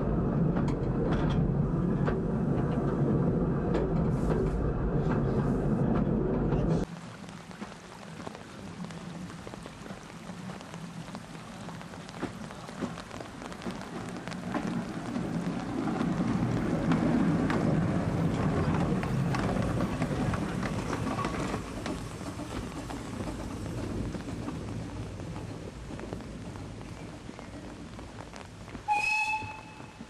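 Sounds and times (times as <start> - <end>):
rain pattering: 6.8 - 30.0
steam locomotive running past: 28.8 - 30.0.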